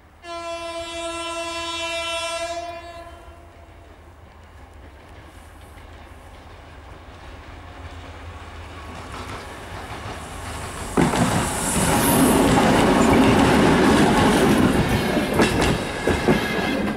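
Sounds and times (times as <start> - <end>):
diesel locomotive engine: 0.0 - 16.9
train wheels clicking on rail joints: 3.4 - 16.9.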